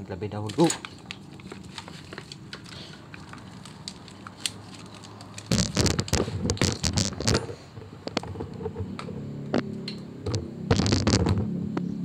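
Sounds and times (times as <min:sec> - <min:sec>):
plastic connectors clicking: 0:00.4 - 0:07.4
wires crackling and rustling: 0:00.4 - 0:08.9, 0:10.3 - 0:11.5.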